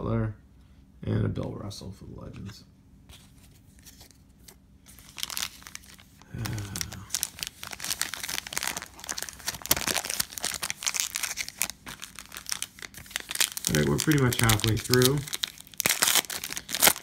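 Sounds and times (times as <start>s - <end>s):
foil wrappers crinkling: 4.9s - 17.0s.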